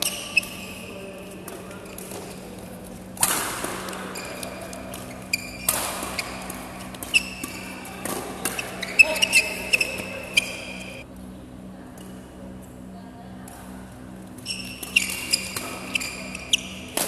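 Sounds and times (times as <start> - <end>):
rackets hitting shuttlecock: 0.0 - 0.8, 1.4 - 11.0, 14.5 - 17.0
shoes squeaking on court: 0.0 - 2.7, 3.8 - 11.0, 14.4 - 17.0.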